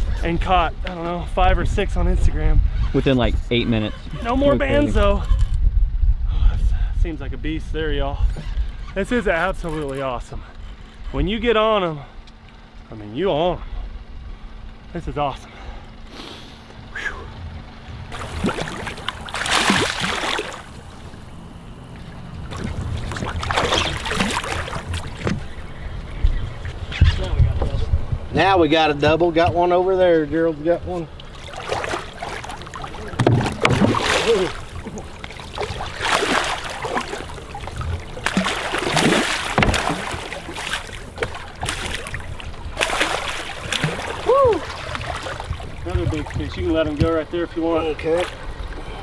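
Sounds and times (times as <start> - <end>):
fish splashing at surface: 18.2 - 20.8, 22.5 - 25.4, 31.3 - 45.6
sharp knocks: 33.2 - 34.0, 38.2 - 40.2.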